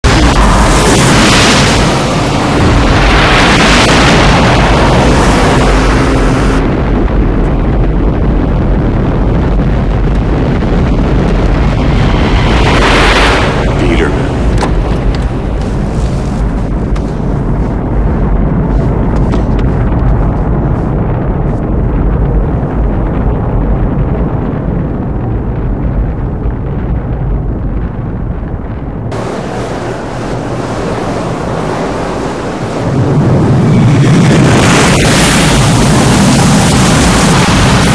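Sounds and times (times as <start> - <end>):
meteor rumble sound effect: 0.0 - 37.9.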